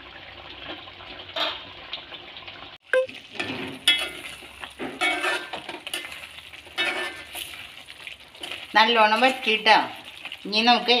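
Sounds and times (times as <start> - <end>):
food sizzling in a pan: 0.0 - 11.0
spoon scraping metal pan: 3.4 - 7.6.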